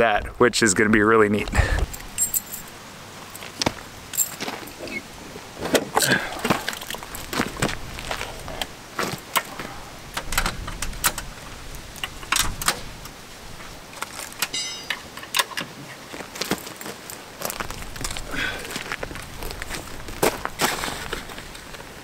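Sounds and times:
high ringing rattle: 2.0 - 2.8, 14.5 - 15.2
objects knocking and clattering: 14.4 - 15.8.

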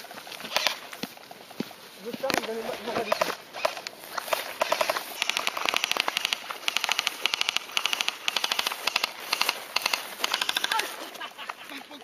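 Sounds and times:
airsoft rifles firing bursts: 2.9 - 11.0.

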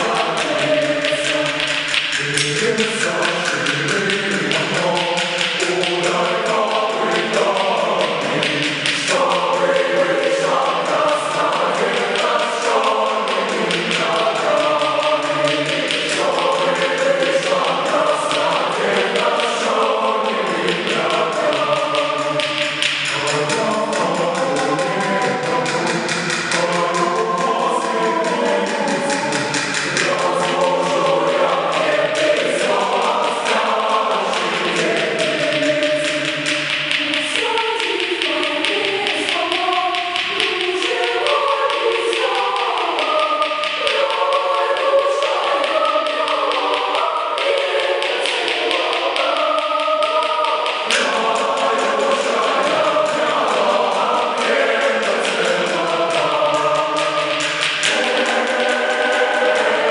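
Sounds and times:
boys choir singing: 0.0 - 59.9.

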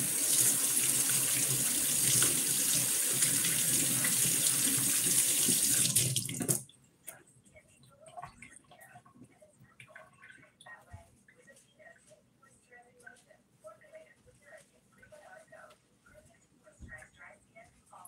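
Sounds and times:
tap water running into sink: 0.0 - 6.6.

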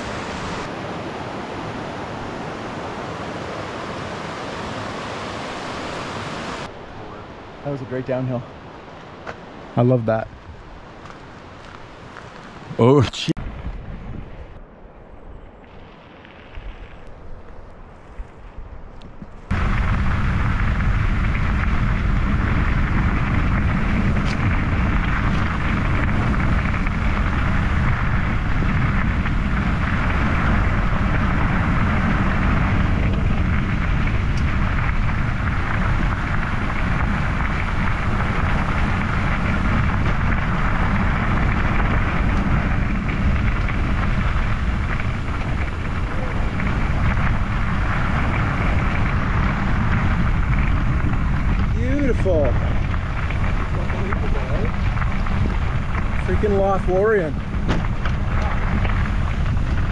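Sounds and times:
wind noise on microphone: 0.0 - 6.8, 9.5 - 59.9
bicycle tyres rolling: 10.3 - 12.8, 15.3 - 59.9.

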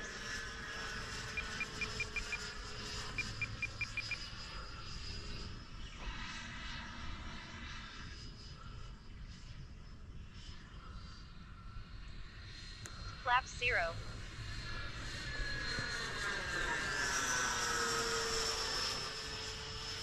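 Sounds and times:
electric ducted fan whine: 0.0 - 20.0
quick high beeps: 3.2 - 4.2.

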